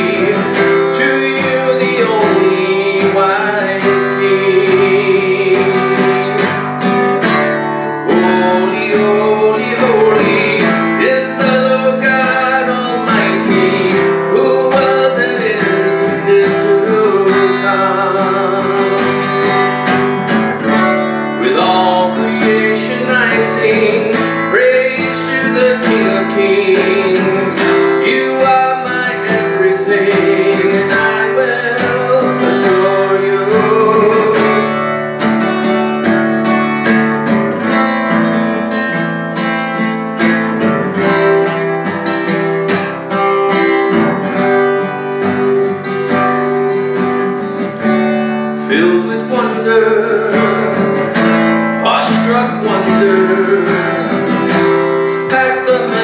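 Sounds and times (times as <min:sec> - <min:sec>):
man singing: 0:00.0 - 0:35.8, 0:36.4 - 0:56.0
acoustic guitar strumming: 0:00.0 - 0:56.0.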